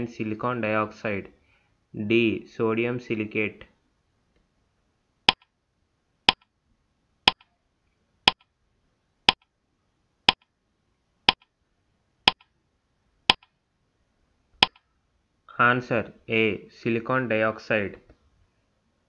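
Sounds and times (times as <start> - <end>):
clock ticks: 7.3 - 7.5, 11.3 - 11.5, 12.3 - 12.5.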